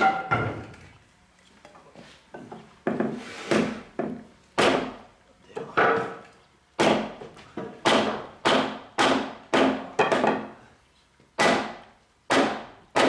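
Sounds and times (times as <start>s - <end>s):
hammer knocking on timber: 6.8s - 10.5s.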